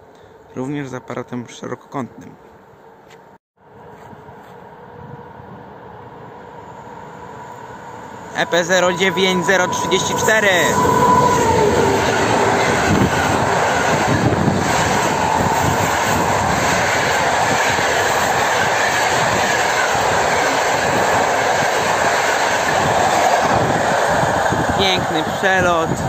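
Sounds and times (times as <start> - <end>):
train wheels rushing on rails: 6.4 - 26.0.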